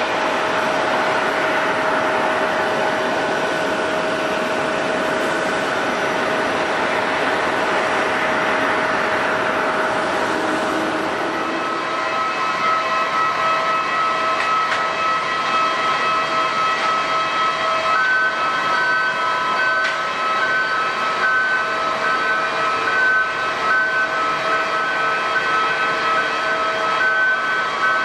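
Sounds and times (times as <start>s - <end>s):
jet engines rushing: 0.0s - 28.0s
pulsing high whining tones: 0.0s - 28.0s.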